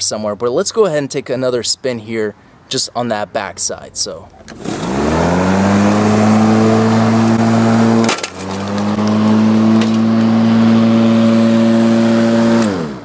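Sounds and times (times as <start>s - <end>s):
electric lawn mower humming: 4.5s - 13.0s.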